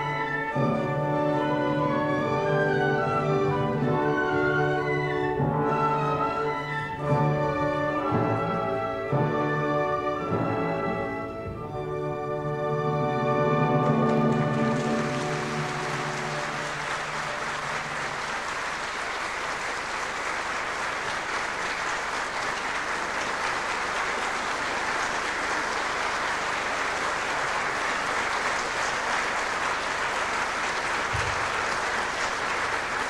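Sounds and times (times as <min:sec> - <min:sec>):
audience applauding: 0:13.8 - 0:33.0.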